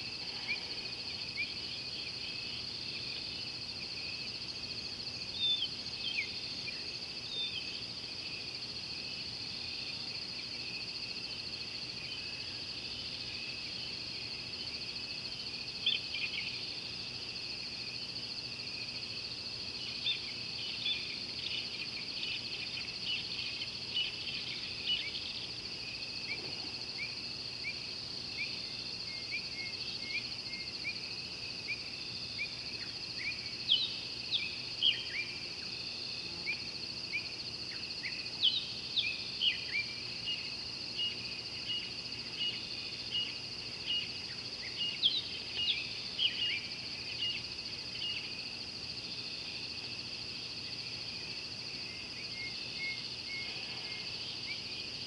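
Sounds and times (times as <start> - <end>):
insect chorus drone: 0.0 - 55.0.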